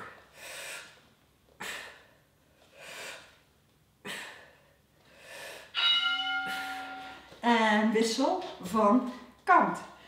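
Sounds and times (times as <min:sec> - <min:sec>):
woman breathing hard: 0:00.0 - 0:03.4, 0:04.0 - 0:05.8.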